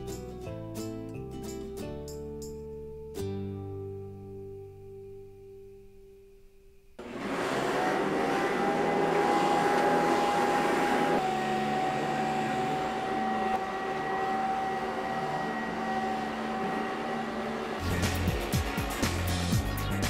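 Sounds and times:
vacuum cleaner motor running: 7.0s - 19.7s.

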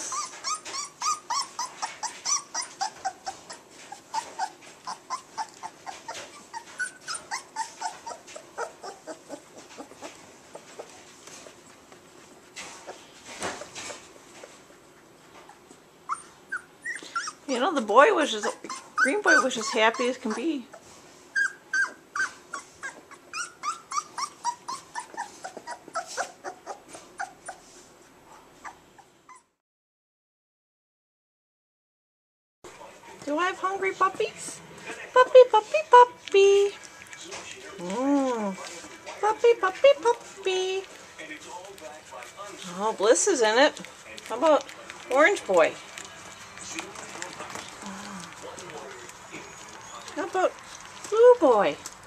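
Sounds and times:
puppies yipping and whimpering: 0.0s - 11.9s, 14.8s - 17.6s, 18.2s - 27.8s, 28.6s - 29.6s, 43.0s - 51.6s.

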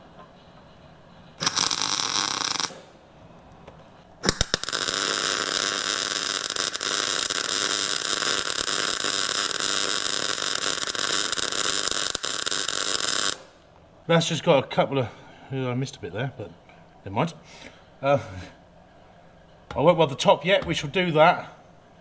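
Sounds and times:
welder arc crackling: 1.4s - 3.0s, 4.2s - 13.6s.

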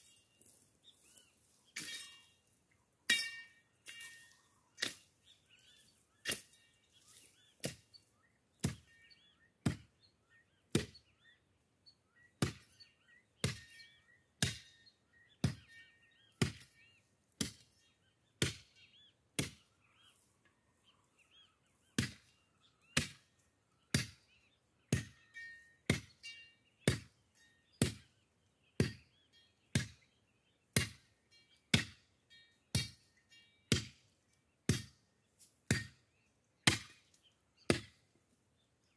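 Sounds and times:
birds chirping: 0.0s - 38.9s
machete chopping brush: 3.1s - 5.6s, 6.2s - 7.9s, 33.7s - 34.0s, 34.7s - 36.0s, 36.6s - 38.0s.

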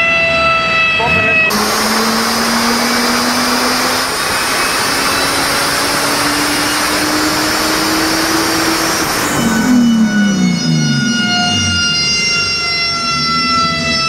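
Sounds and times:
motor vehicle engine running: 1.5s - 11.9s.

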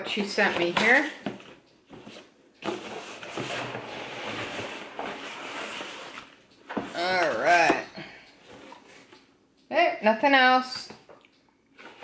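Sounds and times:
cardboard and paper rustling: 0.0s - 9.1s.

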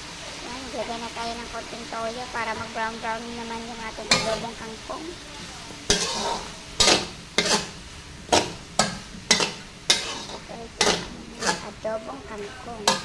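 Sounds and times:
stir-fry sizzle: 0.0s - 13.0s
metal spatula scraping wok: 0.8s - 13.0s.

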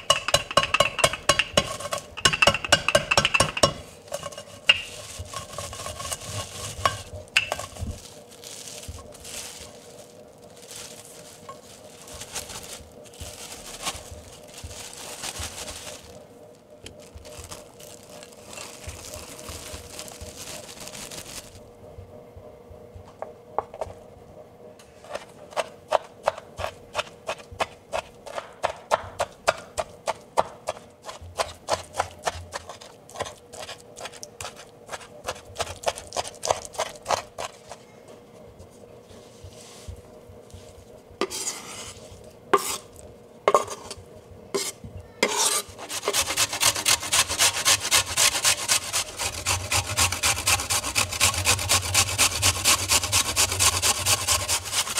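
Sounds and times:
crackling rustling noise: 3.9s - 21.7s
knife chopping on cutting board: 25.1s - 37.5s.

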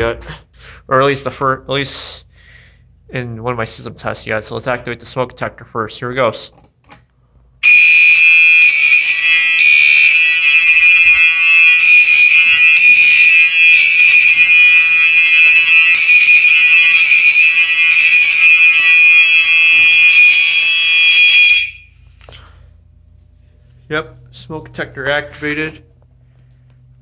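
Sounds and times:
fire alarm horn tone: 7.6s - 22.2s.

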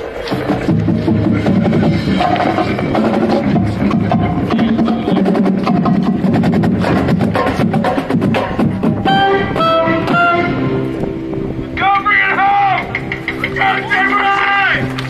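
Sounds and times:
sustained low wind notes: 0.0s - 15.0s
rapid drum strokes: 0.3s - 10.4s.

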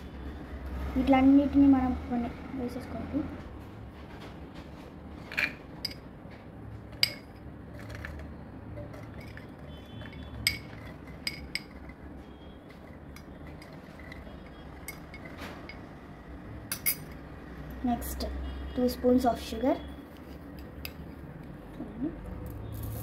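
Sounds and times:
metal spoon clinking on glass: 7.0s - 8.2s, 8.8s - 12.0s, 13.1s - 15.9s, 16.7s - 17.2s.

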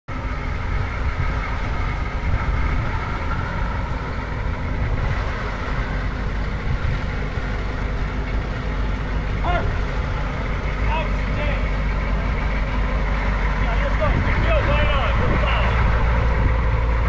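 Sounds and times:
vehicle engine idling: 0.1s - 17.0s.

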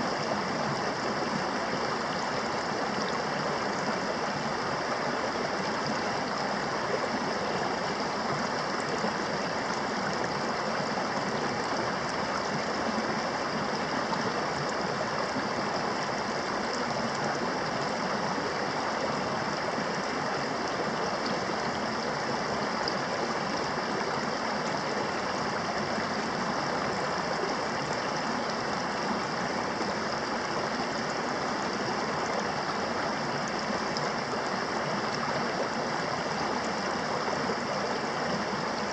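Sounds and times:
creek flowing over rocks: 0.0s - 38.9s.

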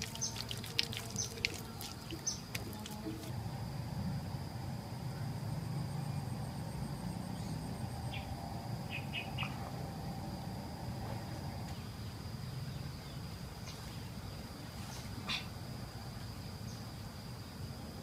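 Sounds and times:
insect pulsing trill: 0.0s - 12.5s
low background rumble: 0.0s - 14.6s
insects droning: 0.0s - 18.0s.

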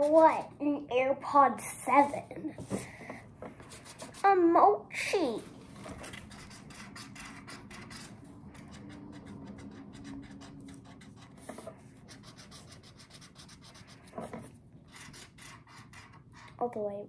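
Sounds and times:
marker rubbing on cardboard: 6.0s - 16.5s.

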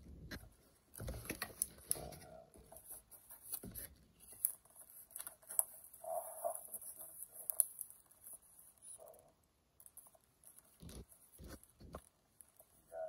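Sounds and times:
paper rustling: 0.3s - 9.0s.

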